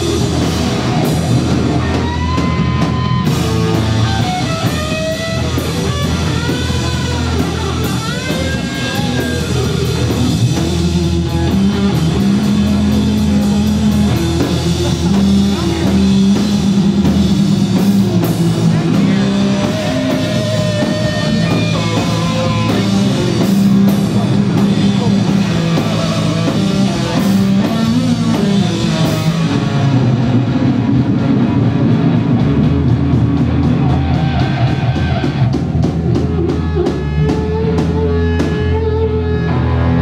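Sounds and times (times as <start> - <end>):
heavy low drone: 0.0 - 40.0
live rock band playing: 0.0 - 40.0.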